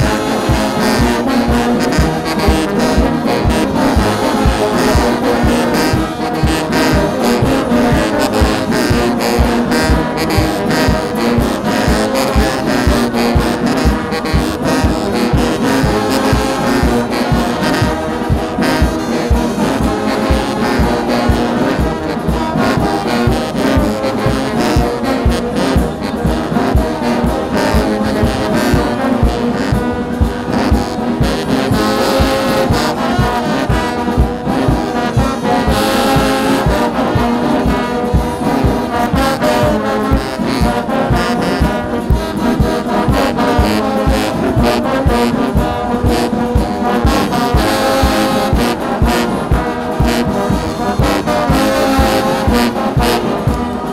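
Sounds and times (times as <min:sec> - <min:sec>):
brass band music: 0:00.0 - 0:53.9
steady drum beat: 0:00.0 - 0:53.9.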